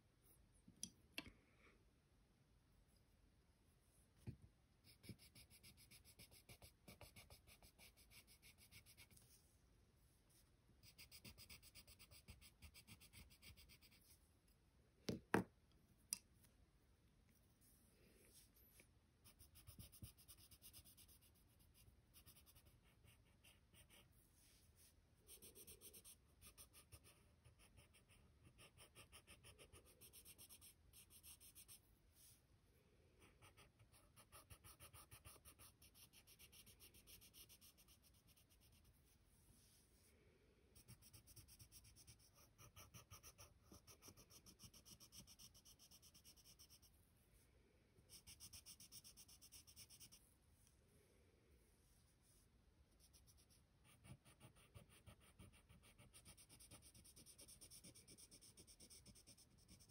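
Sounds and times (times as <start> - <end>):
pencil scratching on paper: 4.8 - 9.3, 10.8 - 14.2, 19.2 - 32.3, 33.2 - 39.0, 40.8 - 46.9, 48.1 - 50.2, 53.0 - 59.9.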